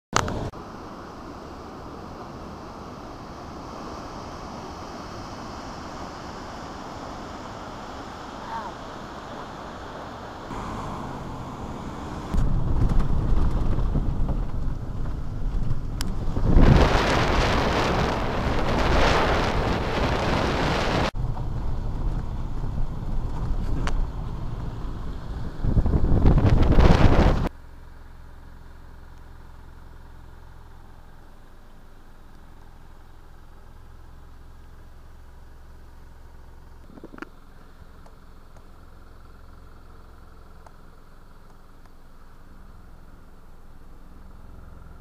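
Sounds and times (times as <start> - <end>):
low outdoor rumble: 0.2 - 45.0
wind buffeting microphone: 10.5 - 27.5.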